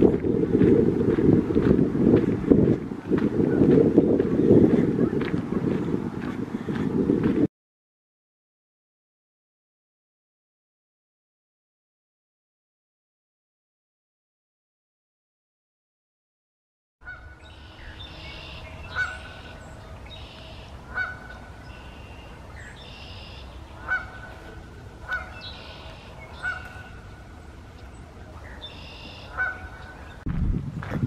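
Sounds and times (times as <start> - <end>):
steady low rumble: 0.0 - 7.5, 17.2 - 31.0
birds calling: 17.0 - 30.3.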